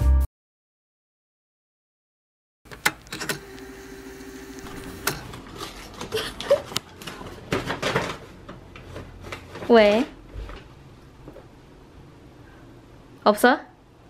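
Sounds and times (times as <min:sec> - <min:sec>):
paper bag rustling: 0:04.7 - 0:10.6.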